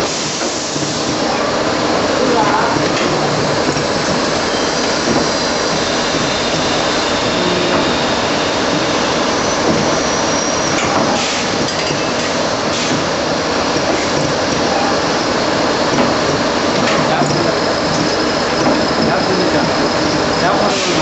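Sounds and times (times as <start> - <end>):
lathe machining din: 0.0 - 21.0.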